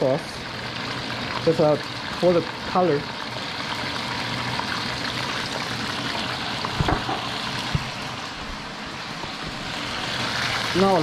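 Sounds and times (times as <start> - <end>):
sauce sizzling in hot oil: 0.0 - 11.0
dull knocks: 6.8 - 7.9.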